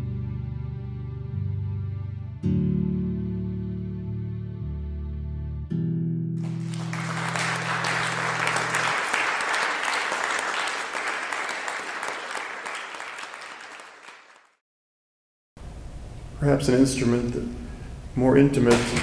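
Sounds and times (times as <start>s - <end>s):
guitar chord ringing: 5.7s - 8.9s
audience clapping: 6.4s - 14.6s.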